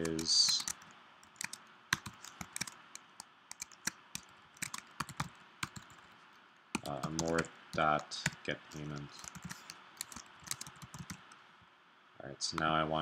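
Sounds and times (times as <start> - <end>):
typing on computer keyboard: 0.0 - 6.2, 6.8 - 7.5, 8.2 - 11.3.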